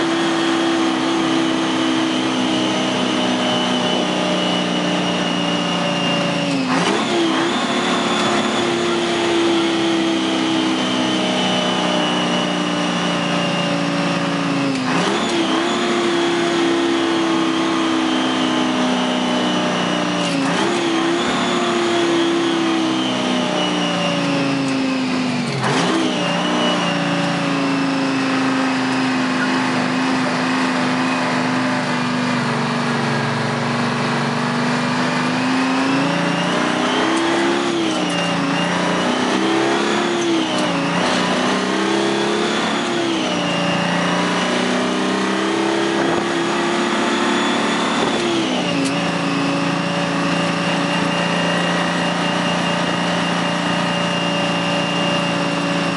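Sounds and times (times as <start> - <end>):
diesel truck engine downshifting: 0.0 - 55.9.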